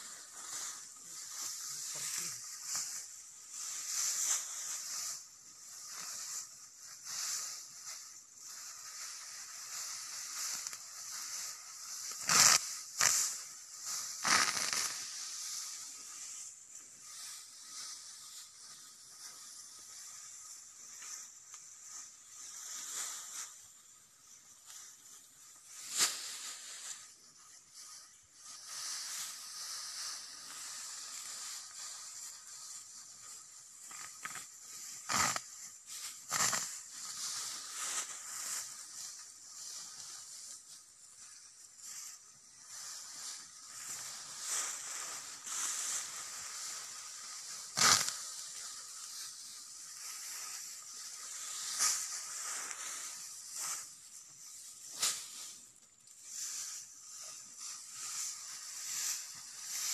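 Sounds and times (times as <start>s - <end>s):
dry grass rustling and crackling: 0.0s - 59.9s
sharp snapping cracks: 47.8s - 48.1s.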